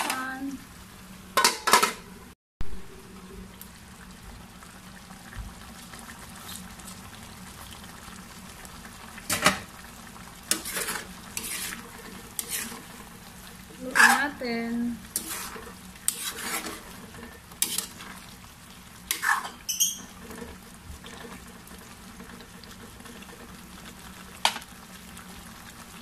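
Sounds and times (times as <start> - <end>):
stew simmering and bubbling: 0.0 - 26.0
metal lid clattering onto pan: 1.4 - 2.0
spatula scraping a pan: 10.5 - 14.4, 15.1 - 18.3, 19.1 - 23.3.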